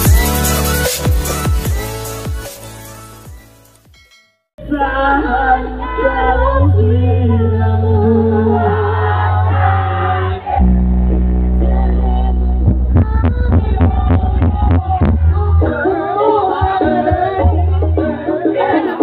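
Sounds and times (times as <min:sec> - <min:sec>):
loud music with singing: 0:00.0 - 0:03.6, 0:04.6 - 0:19.0
heavy sustained bass: 0:04.6 - 0:17.8.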